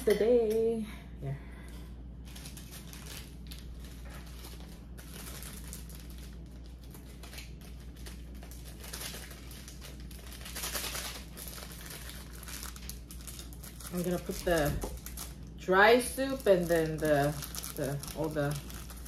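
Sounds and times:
plastic packet crinkling: 2.2 - 19.0.

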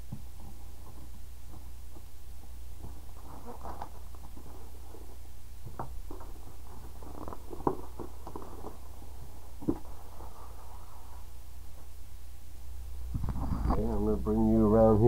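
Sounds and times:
shrink wrap crinkling and tearing: 3.1 - 5.1, 6.0 - 9.5.

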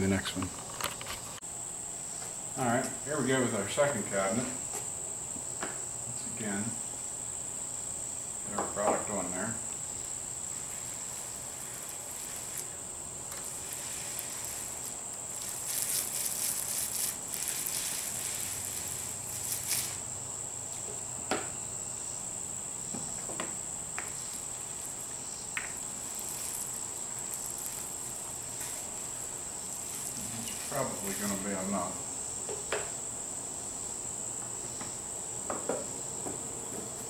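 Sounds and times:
paint roller hissing passes: 9.1 - 20.3, 24.0 - 32.2.

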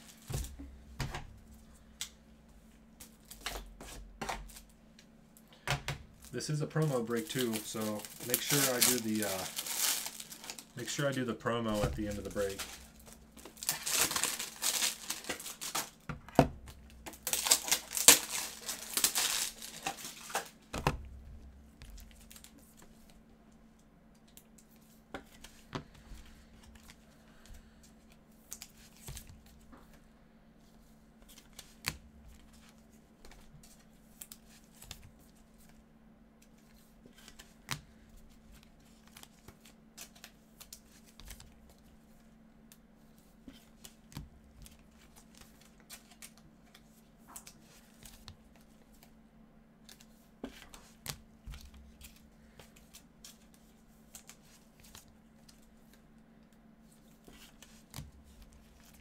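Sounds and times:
foil wrapper crinkling and tearing: 6.3 - 16.0, 17.1 - 20.6.

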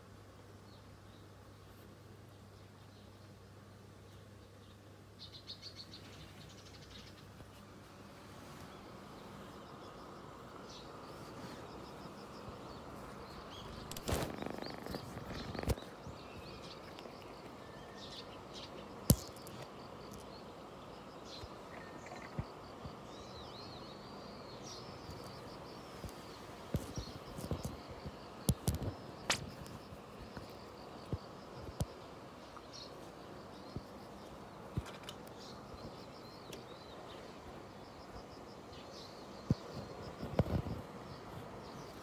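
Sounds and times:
faint outdoor background: 0.0 - 42.0
bird chirps: 8.8 - 37.3.

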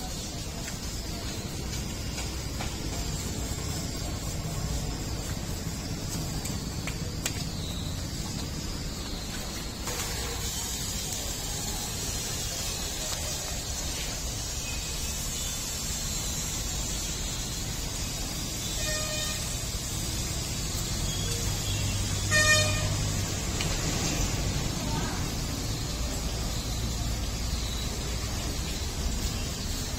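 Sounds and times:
traffic hiss and rumble: 0.0 - 29.9
traffic horns honking: 18.7 - 19.8, 21.7 - 23.3.

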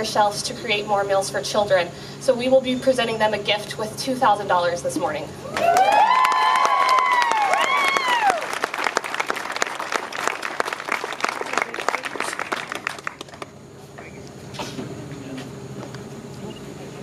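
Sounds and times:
person whooping cheer: 5.4 - 8.6
crowd applauding: 5.5 - 13.5.

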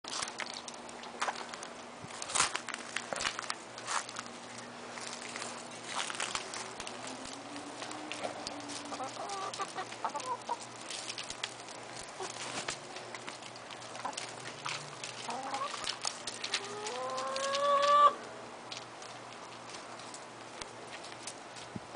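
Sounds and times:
small clicks and rustles: 0.1 - 18.0, 18.7 - 21.9
chickens clucking: 8.2 - 10.8, 13.9 - 14.3, 15.1 - 18.2.

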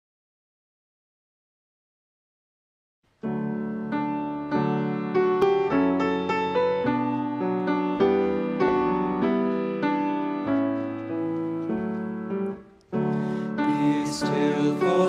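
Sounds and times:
piano chords ringing: 3.2 - 15.0.

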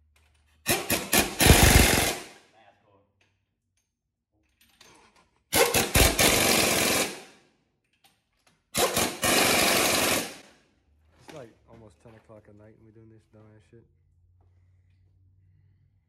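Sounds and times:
pneumatic impact wrench hammering: 0.6 - 2.4, 5.5 - 7.3, 8.7 - 10.5.

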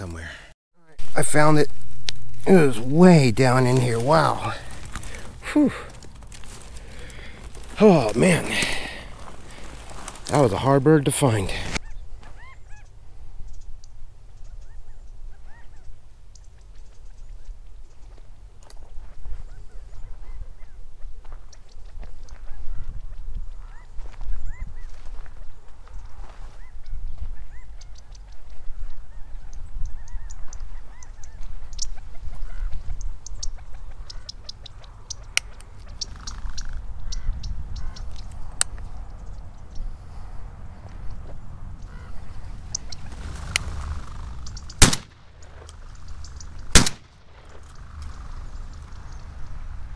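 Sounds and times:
footsteps through brush: 1.0 - 12.5, 18.0 - 29.1, 30.3 - 34.1, 40.1 - 49.9
small birds chirping: 2.4 - 49.9
sharp snaps: 42.7 - 48.2.

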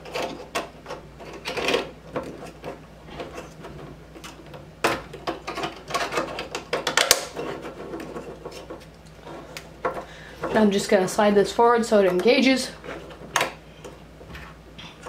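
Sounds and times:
plastic parts clicking and knocking: 0.0 - 10.6.

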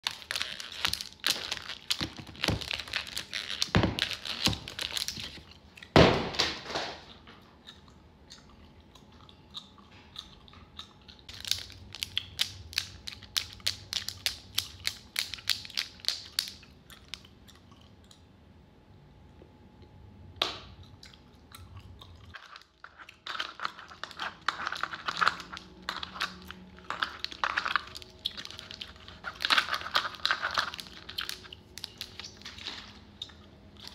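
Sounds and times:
plastic tubes clicking and crinkling: 0.0 - 5.5, 11.3 - 17.2, 22.3 - 33.9.

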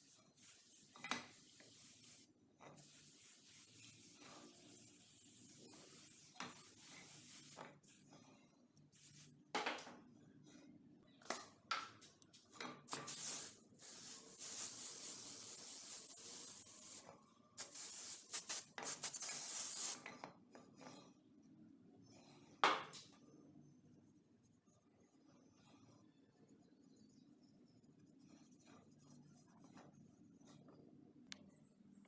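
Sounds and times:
aerosol spray can hissing: 0.4 - 4.2, 8.9 - 9.3, 12.9 - 17.0, 17.6 - 20.0.

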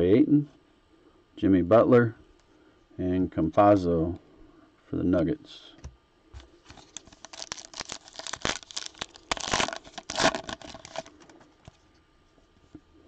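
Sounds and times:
wrapper tearing and crinkling: 6.7 - 11.2.

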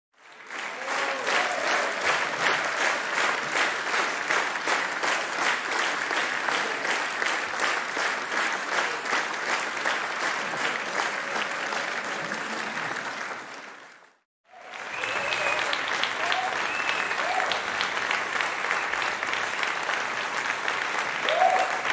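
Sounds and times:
crowd applauding and cheering: 0.2 - 21.9
high whoops: 14.6 - 17.6, 21.2 - 21.9.

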